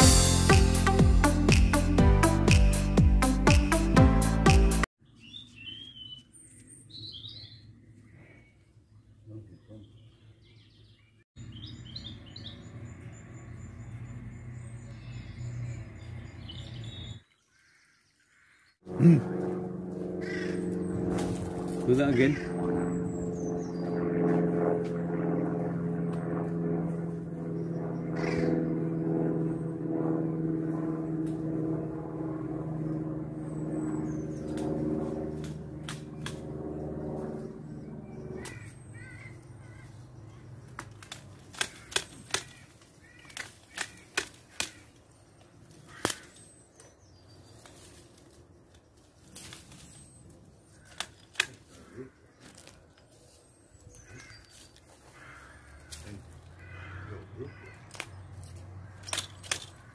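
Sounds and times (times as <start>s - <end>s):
steady droning hum: 18.9s - 48.6s
hedge shears blades clicking: 35.4s - 36.4s, 40.7s - 45.0s, 45.9s - 46.4s, 50.8s - 51.7s, 57.9s - 59.9s.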